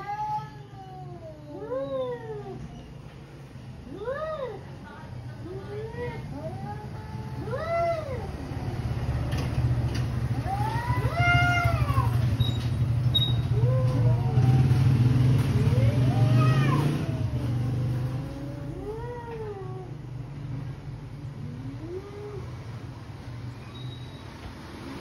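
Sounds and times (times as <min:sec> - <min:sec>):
cats yowling: 0:00.0 - 0:02.8, 0:05.7 - 0:08.4, 0:10.3 - 0:12.4, 0:13.4 - 0:14.9, 0:15.6 - 0:20.0, 0:21.4 - 0:22.6.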